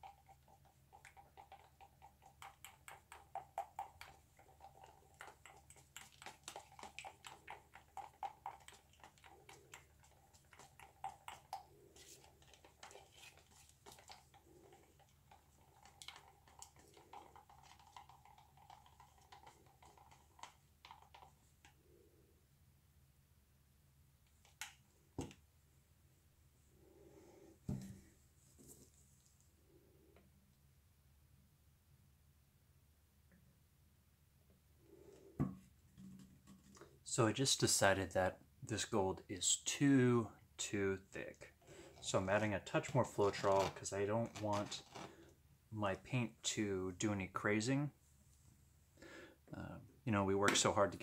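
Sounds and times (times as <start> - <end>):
stir stick scraping plastic cup: 0.0 - 21.8, 41.6 - 45.4.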